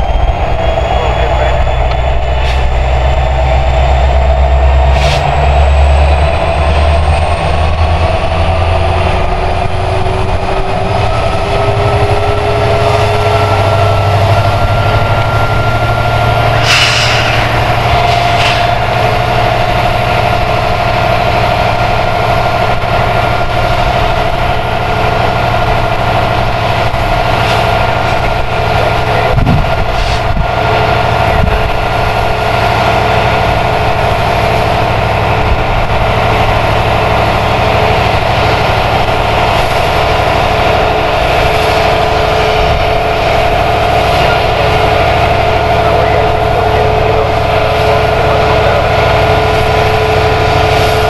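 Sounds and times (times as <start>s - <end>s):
diesel locomotive rumble: 0.0s - 51.0s
turbocharger whine: 0.0s - 51.0s
brief sharp sounds: 16.6s - 17.5s.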